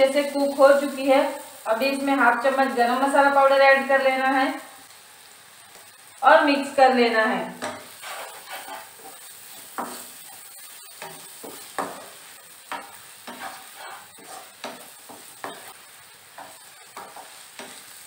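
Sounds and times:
beans sizzling: 0:00.0 - 0:18.0
spatula scraping a pan: 0:07.6 - 0:18.0.

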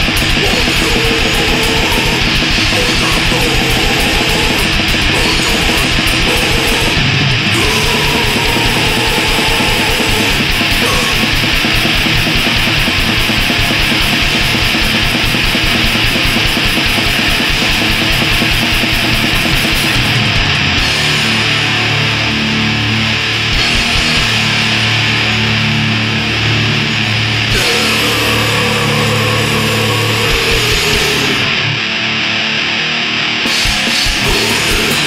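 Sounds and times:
fast drumming: 0:00.0 - 0:21.3, 0:23.6 - 0:24.4, 0:27.5 - 0:31.4, 0:33.5 - 0:35.0
distorted metal guitars: 0:00.0 - 0:35.0.

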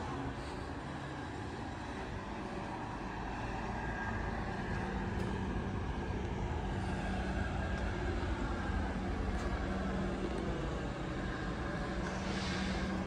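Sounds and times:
distant road traffic hum: 0:00.0 - 0:13.0.

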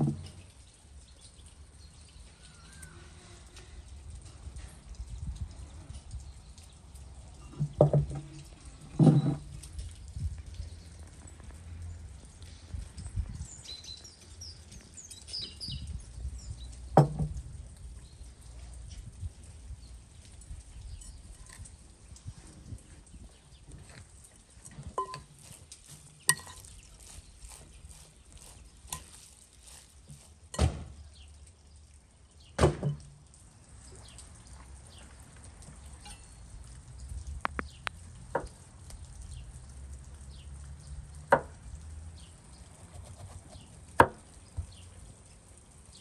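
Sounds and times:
soft handling sounds: 0:23.8 - 0:30.5.

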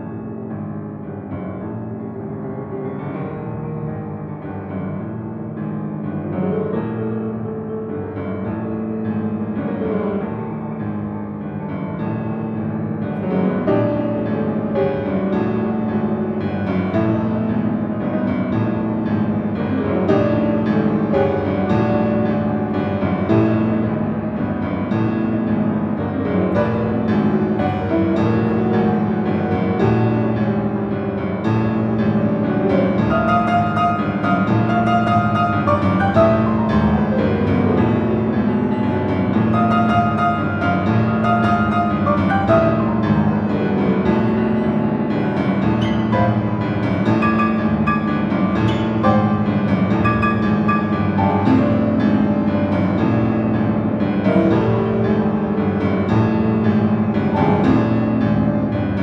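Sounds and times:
grand piano playing chords: 0:00.0 - 0:59.0.

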